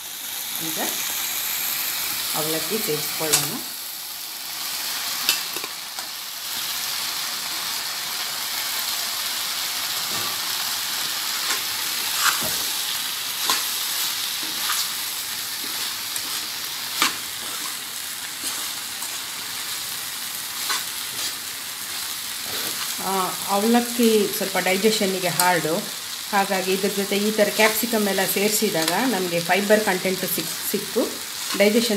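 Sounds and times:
food frying hiss: 0.0 - 31.9
spoon scraping a pan: 11.4 - 23.0.

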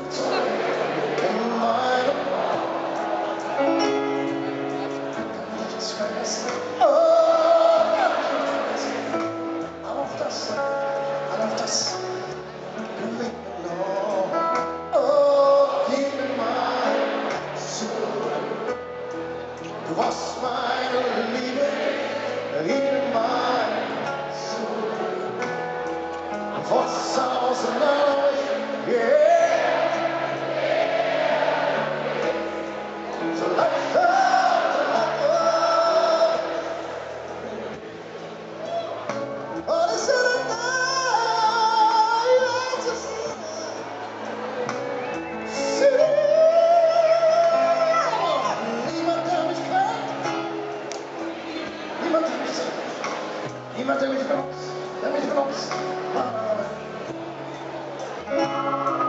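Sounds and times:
people singing: 0.0 - 4.0, 5.5 - 12.1, 12.9 - 19.0, 19.7 - 37.8
piano: 0.0 - 59.0
person singing with vibrato: 5.6 - 12.2, 39.6 - 43.9.

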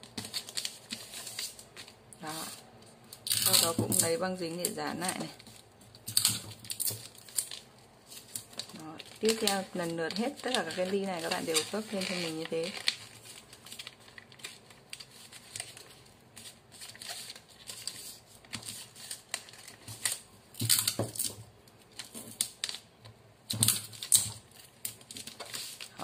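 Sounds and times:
paper rustling: 0.0 - 2.9, 6.6 - 20.3, 23.7 - 26.0.

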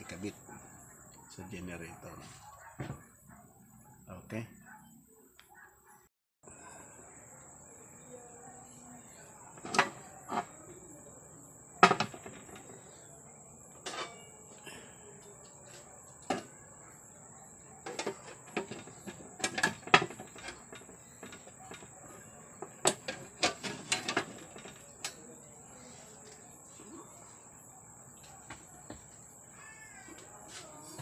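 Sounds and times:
metal lid clanking against box: 11.8 - 12.7, 13.8 - 14.4.

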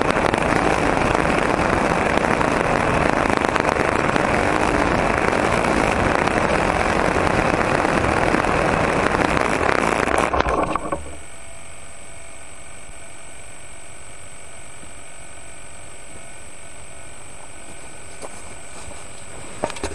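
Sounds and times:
model airplane engine: 0.0 - 11.2
quiet hum with high whine: 0.0 - 19.9.

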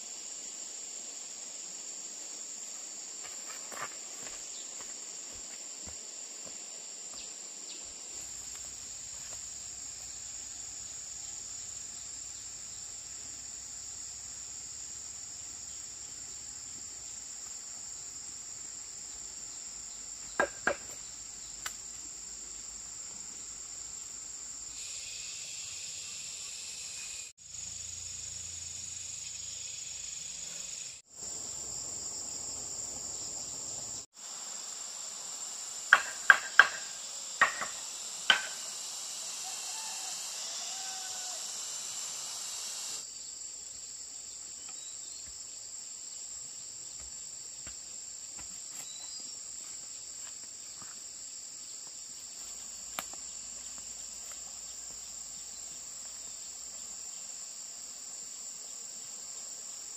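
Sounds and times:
insects chirring: 0.0 - 59.9
sharp knocks: 20.4 - 21.0, 35.9 - 38.6.

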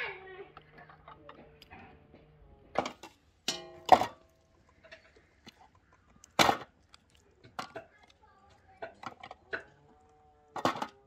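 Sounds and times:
metal cookware clanking: 2.8 - 5.3.

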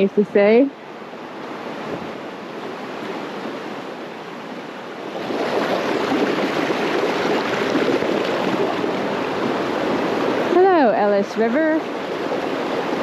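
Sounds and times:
stream rushing over boulders: 0.0 - 13.0.

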